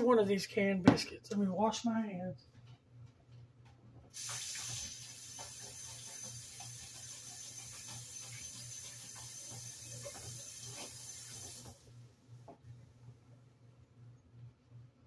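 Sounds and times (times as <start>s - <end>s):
tap running: 4.1s - 11.8s.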